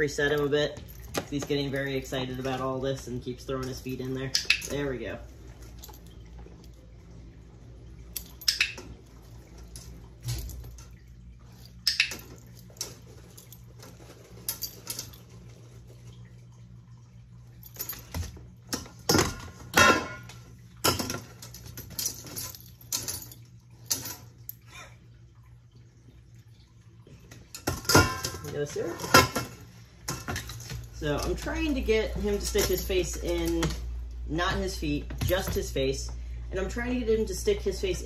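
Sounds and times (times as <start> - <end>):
metal colander and bowl rattling: 27.6 - 33.9.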